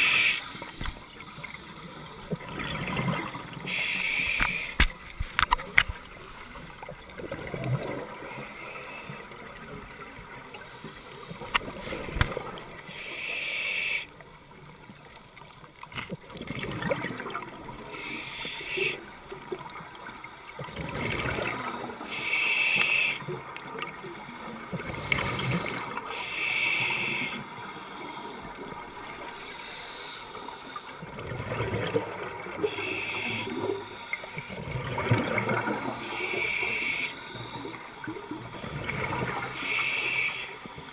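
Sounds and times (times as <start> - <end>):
regulator hiss on inhale: 0.0 - 1.5, 3.6 - 4.8, 8.4 - 9.4, 10.6 - 12.1, 12.8 - 14.1, 17.9 - 19.1, 22.0 - 23.3, 25.0 - 28.6, 29.2 - 31.0, 32.6 - 34.5, 36.0 - 37.9, 39.4 - 40.9
gurgle of exhaled bubbles: 16.3 - 17.8, 20.6 - 22.0, 31.1 - 32.8, 34.5 - 36.1.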